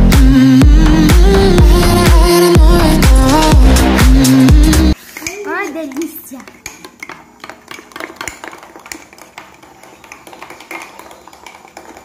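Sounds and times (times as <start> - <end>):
spoons scraping mugs: 5.0 - 12.0.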